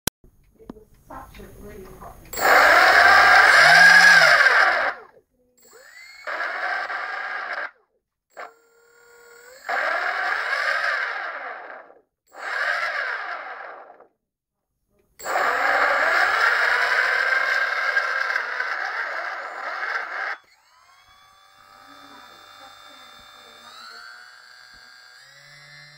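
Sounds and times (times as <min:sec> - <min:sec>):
motor grinding: 0:01.1 - 0:14.1, 0:15.2 - 0:25.9
thin tone stepping up in pitch: 0:02.3 - 0:07.6, 0:15.3 - 0:25.9.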